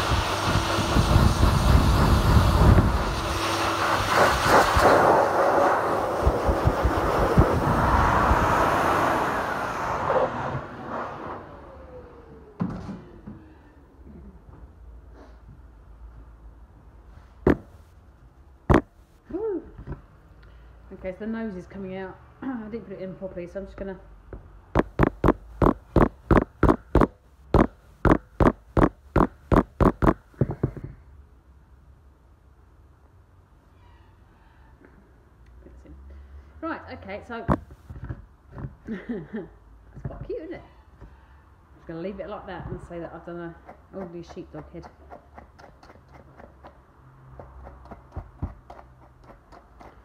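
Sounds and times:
dryer blowing air: 0.0s - 13.2s
motor whine spinning down: 5.0s - 12.7s
plastic brush knocking on plastic: 17.5s - 17.8s, 24.8s - 30.8s.

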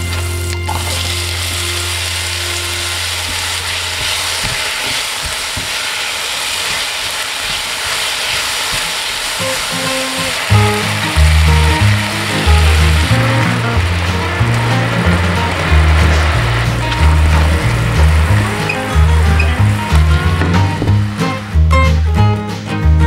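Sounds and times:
music with deep bass: 0.0s - 4.4s, 9.4s - 23.0s
apples sizzling in a frying pan: 0.0s - 21.7s
spatula stirring in a pan: 1.6s - 20.6s.

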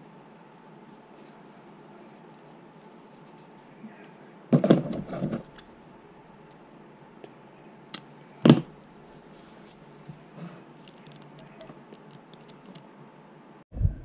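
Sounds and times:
handling rustles and knocks: 4.5s - 5.8s, 7.2s - 12.9s.

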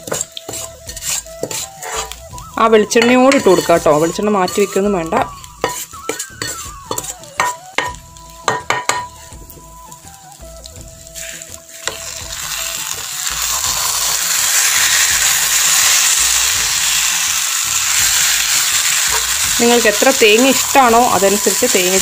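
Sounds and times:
metal spatula scraping a pan: 0.0s - 9.2s, 11.2s - 17.2s
curry sizzling in a pan: 0.0s - 22.0s
spatula knocking on pan: 5.1s - 9.2s.

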